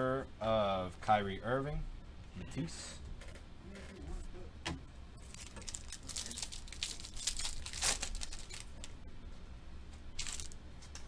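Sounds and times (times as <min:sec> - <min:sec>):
foil wrapper tearing and crinkling: 0:05.2 - 0:08.9, 0:10.2 - 0:10.6.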